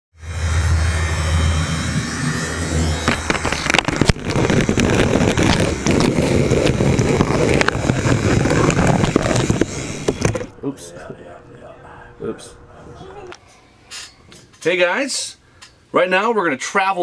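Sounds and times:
model train low hum: 0.2 - 3.8.

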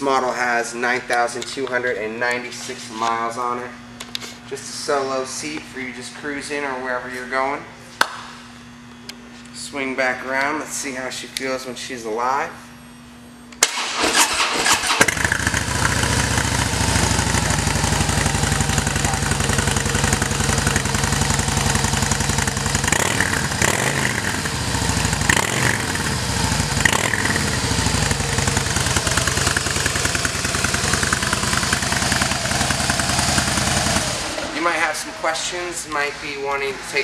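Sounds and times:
motorcycle engine starting: 13.6 - 35.0
motorcycle engine revving: 14.0 - 34.8
motorcycle engine idling: 15.0 - 34.6.

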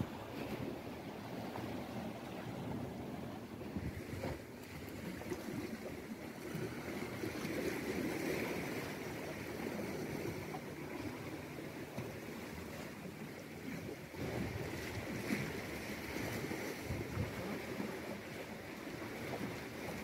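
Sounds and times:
wind buffeting microphone: 0.0 - 5.3, 16.3 - 18.2
sea water washing against rocks: 0.0 - 20.0.

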